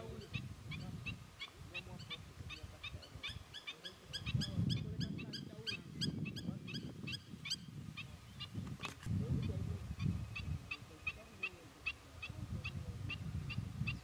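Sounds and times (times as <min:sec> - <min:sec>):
birds giving sharp high calls: 0:00.0 - 0:14.0.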